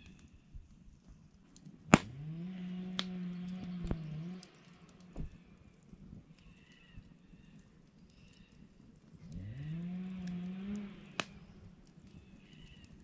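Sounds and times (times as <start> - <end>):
birds chirping: 2.5 - 8.7, 10.5 - 13.0.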